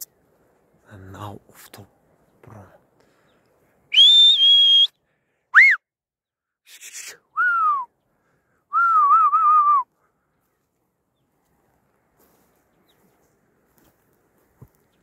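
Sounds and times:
person whistling with mouth: 3.9 - 5.0, 5.6 - 5.8, 6.8 - 7.9, 8.7 - 9.9.

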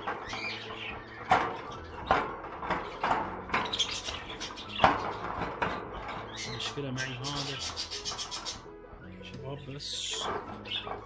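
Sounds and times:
clicks on wire bird cage: 0.0 - 8.6
small birds chirping: 0.0 - 11.0.

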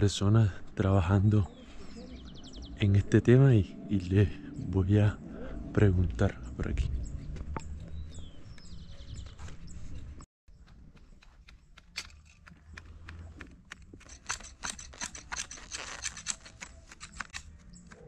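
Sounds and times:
garden shears snipping: 10.6 - 18.0.

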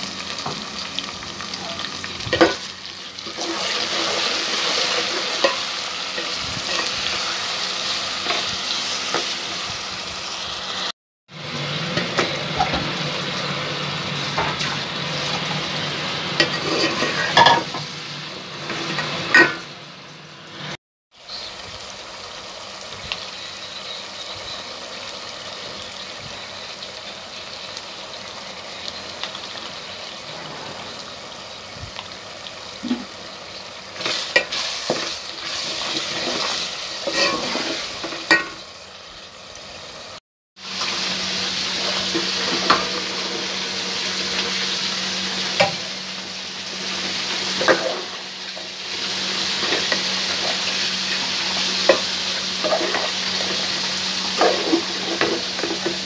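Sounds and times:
masala sizzling in hot oil: 0.0 - 56.0
spoon scraping a metal pot: 16.4 - 17.7, 36.0 - 38.5.

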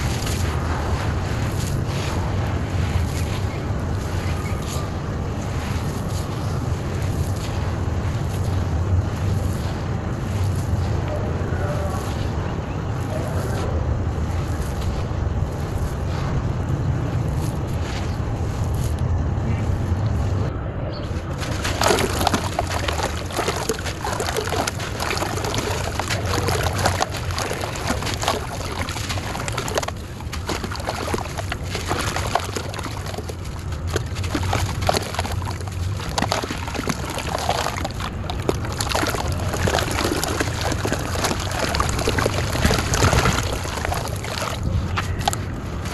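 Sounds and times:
hands stirring dry soil: 0.0 - 20.4, 21.1 - 45.9
dry clay crushed by hand: 21.3 - 45.9
crumbs splashing into water: 21.4 - 45.9.

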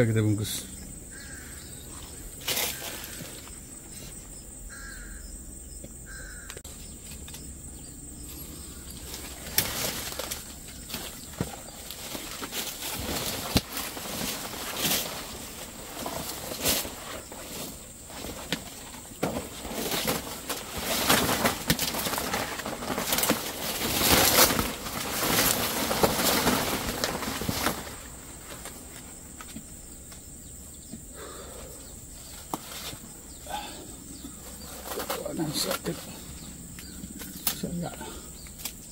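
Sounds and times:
leaves and twigs brushing: 1.1 - 5.0, 8.2 - 30.3, 34.3 - 38.9
plastic bag crinkling: 8.9 - 28.8.

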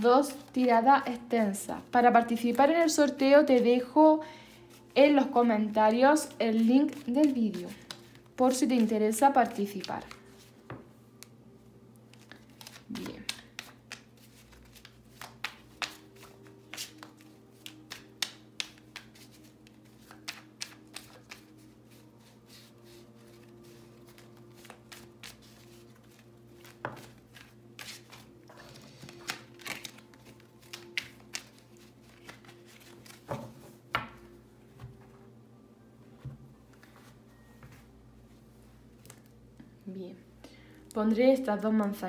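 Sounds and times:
cards being shuffled: 4.8 - 11.4, 12.0 - 34.2.

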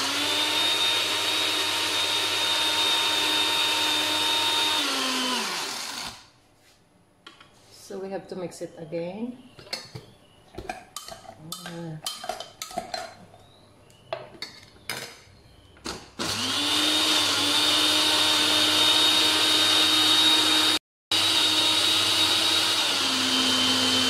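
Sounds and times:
electric blender whining: 0.0 - 6.2, 16.2 - 24.0.

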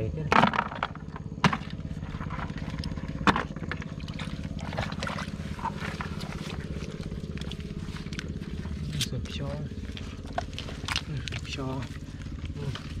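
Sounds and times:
water pump engine running: 0.3 - 13.0.

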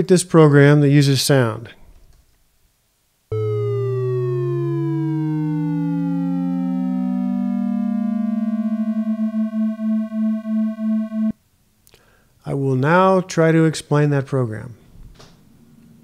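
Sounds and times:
synthesized tones gliding in pitch: 3.3 - 11.3
throbbing beating tones: 3.3 - 11.3.

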